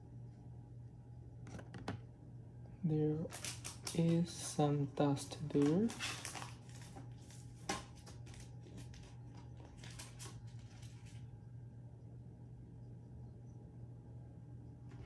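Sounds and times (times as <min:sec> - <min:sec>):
steady low hum: 0:00.0 - 0:15.0
packaging rustling: 0:03.3 - 0:04.6, 0:05.3 - 0:11.2.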